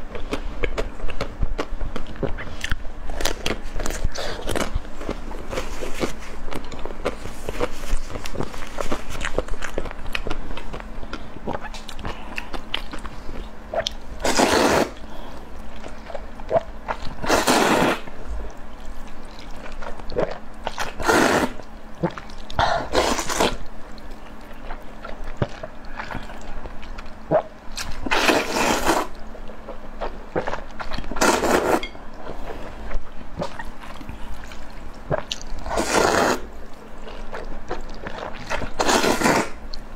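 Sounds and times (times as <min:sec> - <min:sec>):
chewing: 0:00.1 - 0:14.0, 0:18.4 - 0:21.0, 0:21.6 - 0:28.4, 0:32.1 - 0:35.9, 0:36.6 - 0:39.1
slurping noodles: 0:14.2 - 0:15.0, 0:17.2 - 0:18.1, 0:20.9 - 0:21.6, 0:22.8 - 0:23.6, 0:28.1 - 0:29.1, 0:31.1 - 0:31.8, 0:35.1 - 0:36.5, 0:38.1 - 0:39.6.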